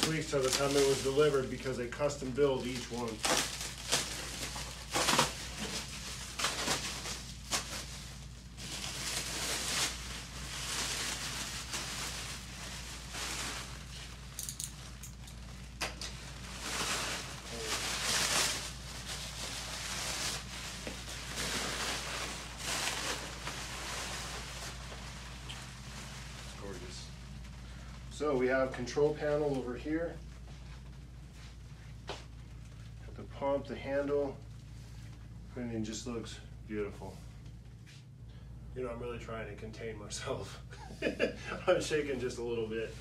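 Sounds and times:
plastic wrap snapping: 0.0 - 1.1, 2.6 - 7.9
plastic wrap crinkling and rustling: 0.0 - 33.1
steady low hum: 0.0 - 43.0.

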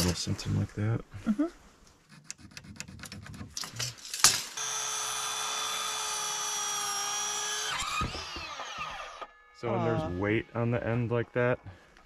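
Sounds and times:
circular saw whining: 4.5 - 12.0
saw blade winding down: 4.6 - 10.2.

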